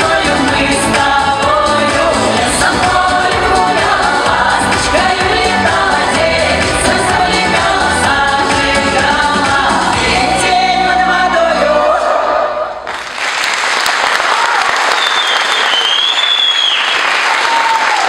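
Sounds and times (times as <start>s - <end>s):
women's folk ensemble singing: 0.0s - 12.8s
audience applause: 12.8s - 18.0s.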